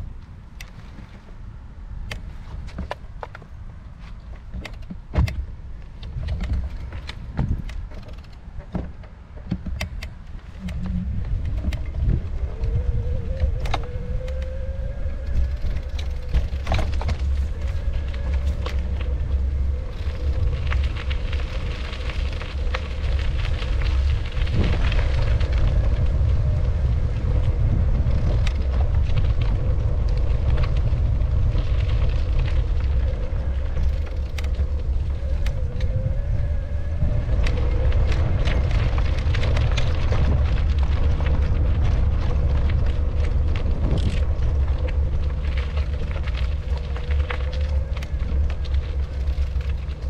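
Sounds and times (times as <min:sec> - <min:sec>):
wind buffeting microphone: 0:00.0 - 0:50.0
faint hum: 0:09.9 - 0:50.0.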